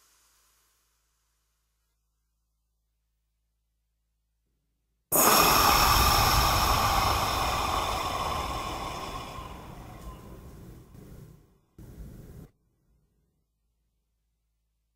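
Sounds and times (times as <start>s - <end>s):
breathy electronic hiss: 0.0s - 1.6s, 5.1s - 12.5s.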